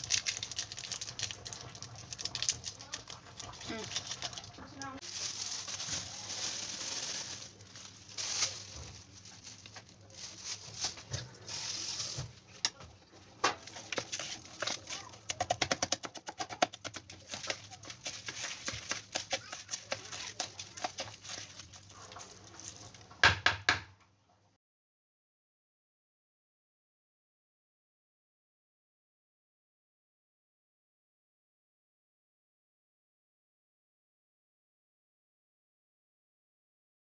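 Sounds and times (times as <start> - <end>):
hand rustling rice: 5.0 - 12.3
rice grains clicking on plastic: 13.5 - 23.8
knocks on colander: 23.2 - 23.9.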